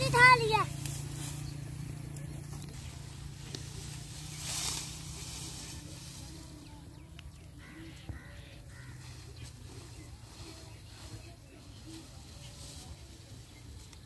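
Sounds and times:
rustle of fodder stalks: 0.0 - 14.0.

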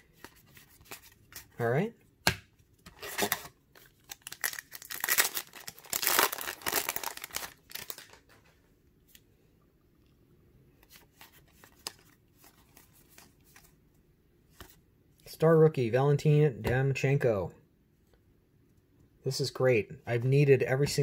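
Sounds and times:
foil wrapper tearing and crinkling: 3.0 - 8.2.

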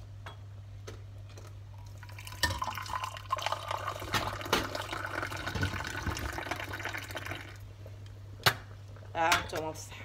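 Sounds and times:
tea pouring into glasses: 1.7 - 7.6.

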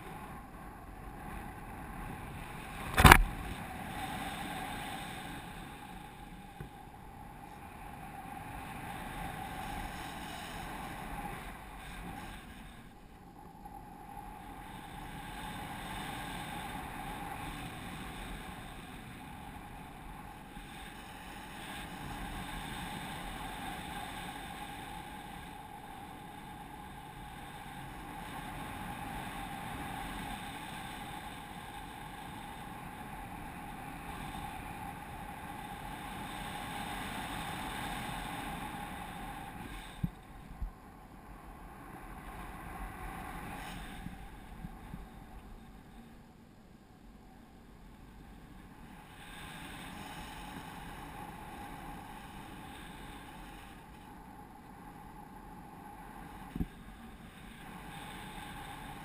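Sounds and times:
wind rushing over microphone: 0.0 - 46.3, 47.2 - 59.0
short sharp knock: 3.0 - 3.4.

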